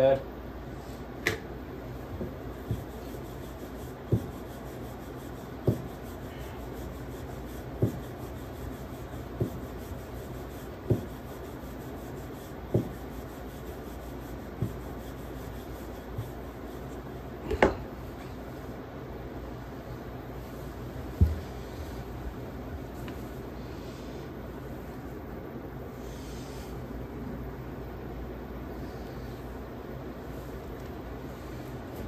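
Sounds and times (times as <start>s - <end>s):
rolling pin rubbing on dough: 1.8s - 18.8s, 20.4s - 25.1s
rolling pin knocking on board: 2.1s - 4.6s, 5.5s - 6.2s, 7.6s - 11.4s, 12.1s - 13.1s, 14.5s - 16.4s, 21.2s - 21.5s.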